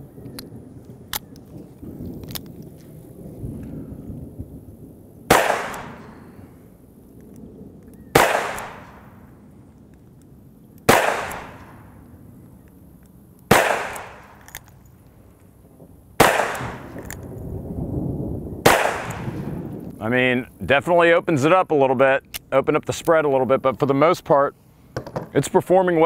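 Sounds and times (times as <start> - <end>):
revolver shots echoing: 5.3 - 6.5, 8.1 - 9.3, 10.9 - 12.0, 13.5 - 14.5, 16.2 - 17.2, 18.7 - 19.5.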